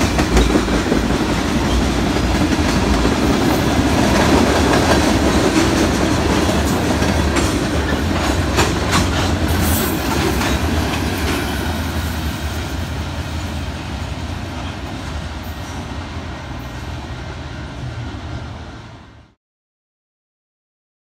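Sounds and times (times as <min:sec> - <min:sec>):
wheels clacking over rail joints: 0:00.0 - 0:15.8
freight train rolling past: 0:00.0 - 0:19.4.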